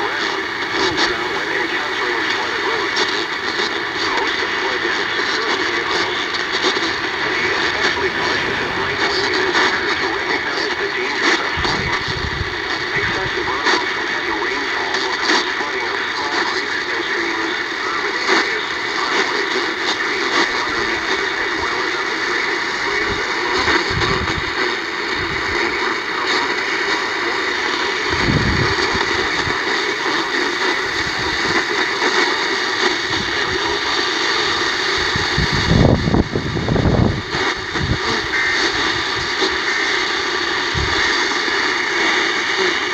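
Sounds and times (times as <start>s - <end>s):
radio static and hiss: 0.0s - 42.9s
low rumbles: 5.7s - 13.2s.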